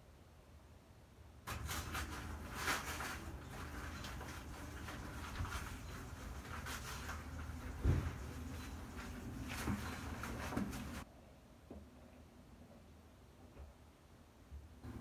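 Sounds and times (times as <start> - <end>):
grout scraped in plastic bucket: 1.5 - 11.0.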